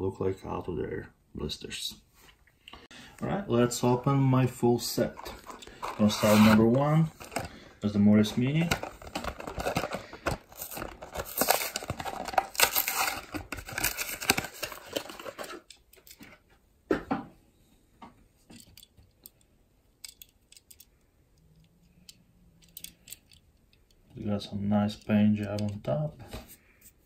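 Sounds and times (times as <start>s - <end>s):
plastic packaging ripping: 8.8s - 15.6s
plastic clicks: 18.5s - 24.1s.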